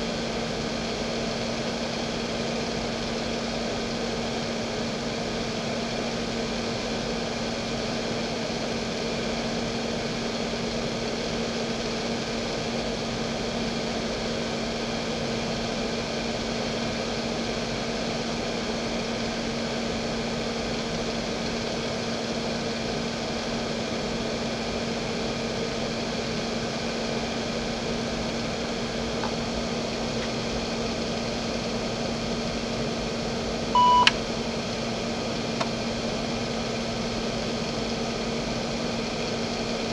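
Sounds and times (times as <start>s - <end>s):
hard drive spinning: 0.0s - 39.9s
computer hum: 22.6s - 39.9s
computer beep: 33.8s - 34.1s
click: 34.0s - 34.2s.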